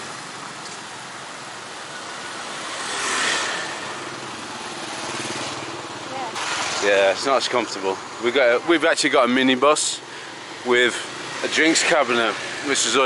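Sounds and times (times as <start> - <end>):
passing traffic hum: 0.0 - 13.0
vehicle engine passing close: 0.1 - 8.9.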